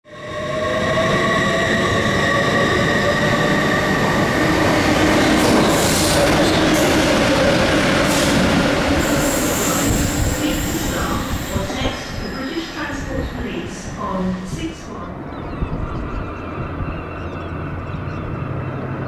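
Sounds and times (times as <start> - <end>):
freight train passing: 0.1 - 19.0
train clanks: 4.1 - 14.6.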